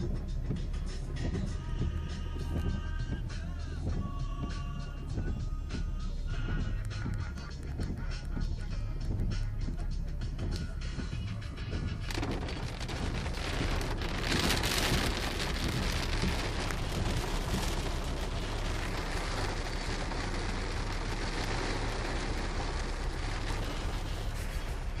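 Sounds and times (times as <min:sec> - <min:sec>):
heavy rain on car roof: 0:00.0 - 0:25.0.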